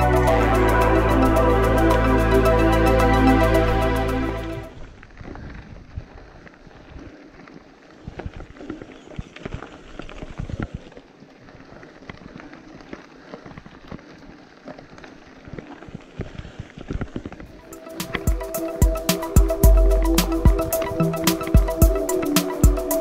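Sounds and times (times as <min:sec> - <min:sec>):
bike tyres crunching on gravel: 0:04.7 - 0:22.8.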